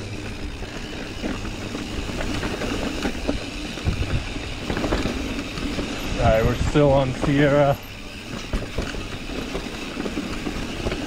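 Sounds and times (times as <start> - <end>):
bike rattling over bumps: 0.0 - 11.0
bike tyres rumbling over dirt: 0.0 - 11.0
wind noise on microphone: 2.1 - 7.5.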